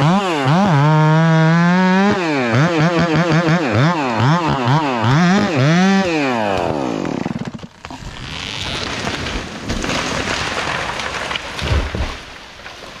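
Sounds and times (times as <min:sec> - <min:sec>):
chainsaw running under load: 0:00.0 - 0:09.8
tree crashing through branches: 0:06.4 - 0:13.0.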